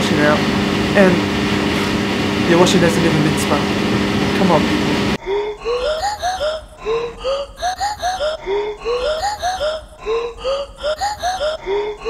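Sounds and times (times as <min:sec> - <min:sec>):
looping swooping vocal-like music: 0:05.1 - 0:12.0.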